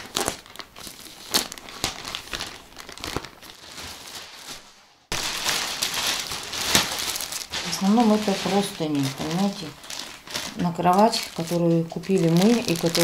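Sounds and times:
plastic mailer bag crinkling: 0.0 - 13.0.

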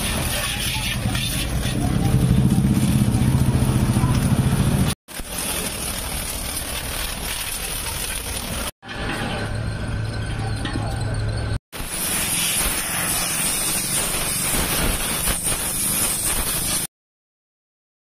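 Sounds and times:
pressure washer spray hiss: 11.8 - 16.9.

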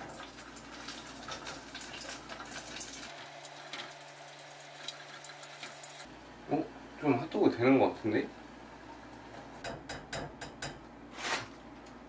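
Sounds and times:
food sizzling in hot oil: 0.0 - 6.1.

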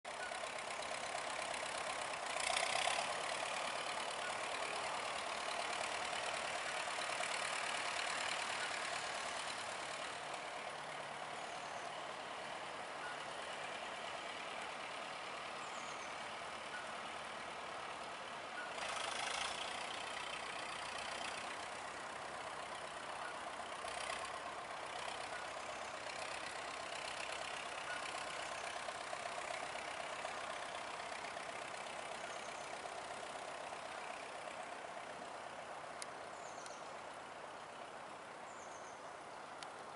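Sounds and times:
tractor engine running: 0.0 - 39.9.

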